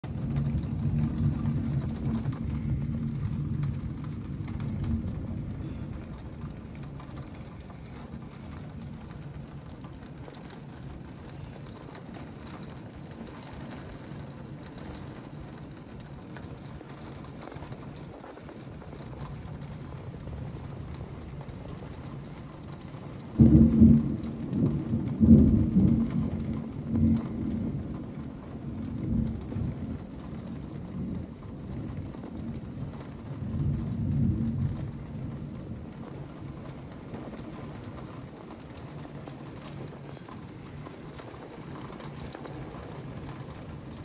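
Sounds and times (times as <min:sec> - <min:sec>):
low rumble: 0:00.0 - 0:15.6
heavy rain on pavement: 0:00.0 - 0:44.0.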